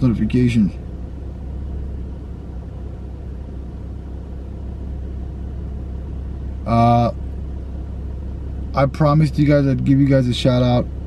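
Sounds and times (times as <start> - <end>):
car engine running: 0.0 - 11.0.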